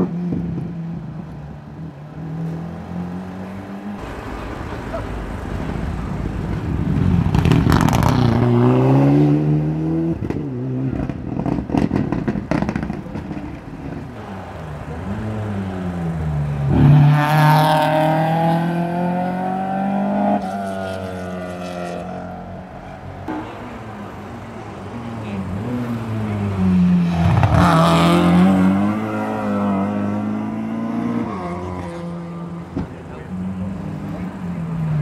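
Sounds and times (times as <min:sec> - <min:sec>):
rally car engine revving: 0:06.4 - 0:22.5, 0:23.2 - 0:34.8.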